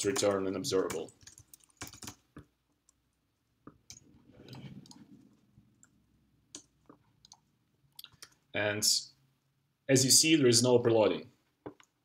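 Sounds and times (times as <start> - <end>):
keyboard and mouse clicks: 0.0 - 3.0, 3.6 - 8.4, 11.6 - 12.0.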